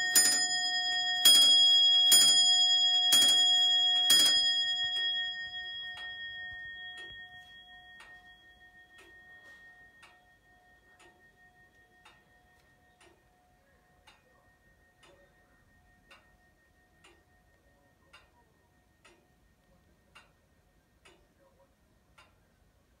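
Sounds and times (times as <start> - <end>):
clock bell ringing: 0.0 - 18.1
clock ticking: 0.0 - 23.0.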